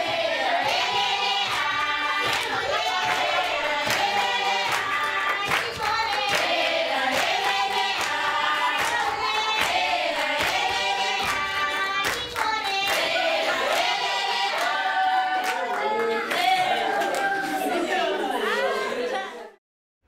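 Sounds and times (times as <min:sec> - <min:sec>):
children singing in chorus: 0:00.0 - 0:16.9
hand claps: 0:00.6 - 0:13.9.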